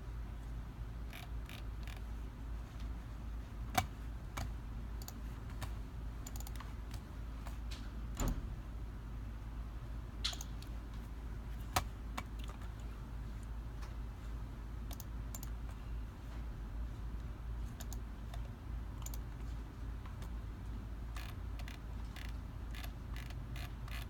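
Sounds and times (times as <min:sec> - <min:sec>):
steady low hum: 0:00.0 - 0:24.0
keyboard and mouse clicks: 0:01.1 - 0:02.0, 0:03.7 - 0:08.4, 0:10.2 - 0:10.7, 0:11.6 - 0:12.8, 0:14.9 - 0:15.7, 0:17.7 - 0:19.3, 0:21.1 - 0:24.0.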